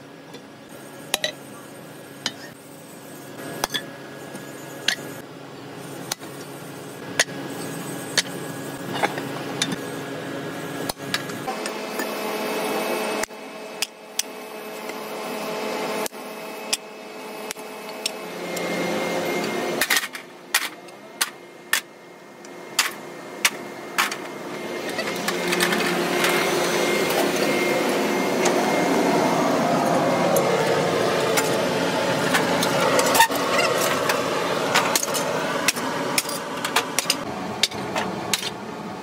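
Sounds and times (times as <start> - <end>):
metalworking machinery humming: 0.0 - 39.0
rushing machine noise: 22.6 - 39.0.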